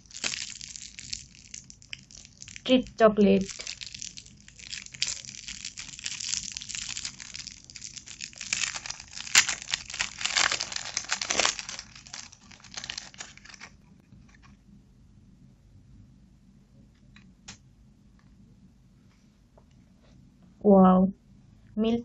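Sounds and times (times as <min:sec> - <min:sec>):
wrapper sharp crack: 0:00.0 - 0:02.7, 0:03.4 - 0:13.8
chocolate wrapper crinkling: 0:00.0 - 0:14.5.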